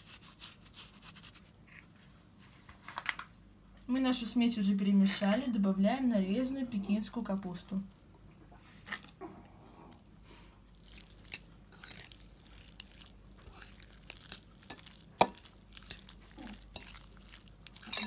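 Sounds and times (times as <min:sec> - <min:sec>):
fork squelching wet filling: 0:09.9 - 0:18.0.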